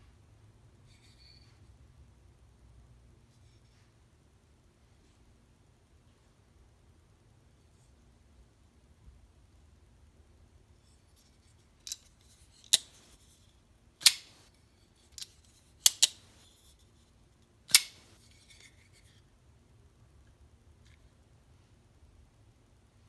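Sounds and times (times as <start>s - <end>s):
knife blade snapping open and shut: 14.0s - 14.4s, 15.2s - 16.2s, 17.7s - 18.1s.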